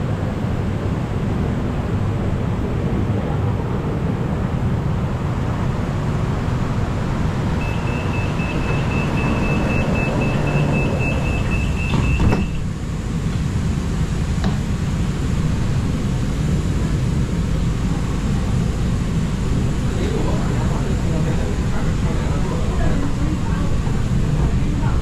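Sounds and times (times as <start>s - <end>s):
low train hum: 0.0s - 25.0s
rapid high door warning beeps: 7.6s - 12.7s
train doors shutting thud: 7.6s - 13.4s, 14.4s - 14.7s.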